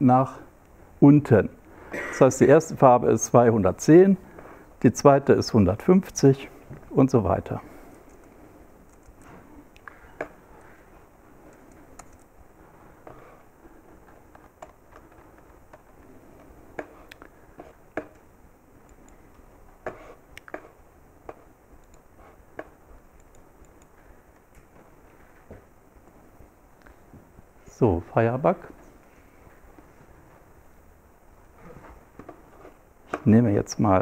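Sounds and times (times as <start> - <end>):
faint room noise: 0.0 - 34.0
laptop clicks and taps: 11.5 - 12.3.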